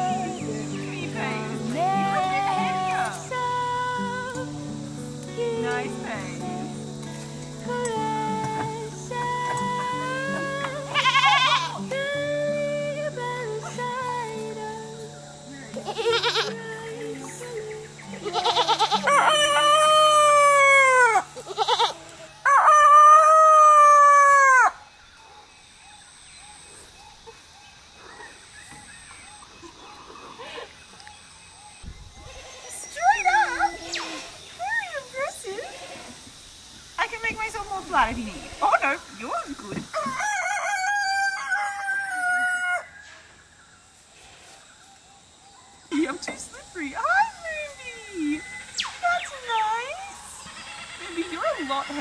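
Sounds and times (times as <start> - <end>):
rooster crowing: 18.5 - 21.8, 22.4 - 24.8, 39.9 - 43.4.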